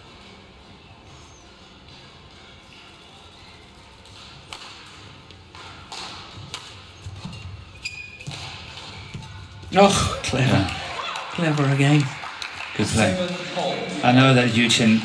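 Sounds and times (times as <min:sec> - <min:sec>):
rackets striking shuttlecock: 0:04.1 - 0:07.4, 0:08.0 - 0:10.5
shoe squeak: 0:06.7 - 0:09.6.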